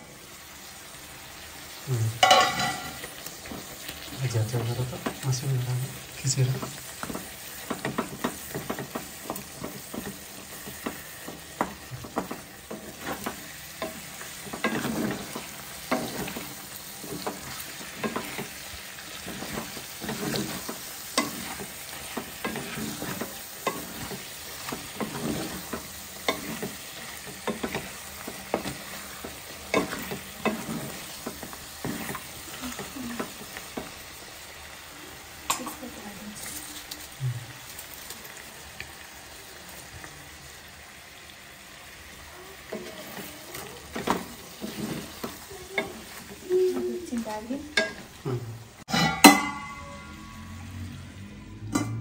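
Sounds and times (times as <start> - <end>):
meat sizzling in a wok: 0.0 - 52.0
wooden spatula scraping pan: 2.3 - 34.0, 42.7 - 48.2.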